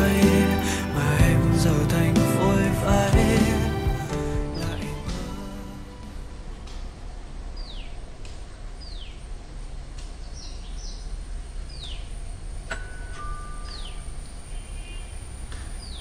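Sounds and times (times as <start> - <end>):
birds whistling: 13.6 - 16.0.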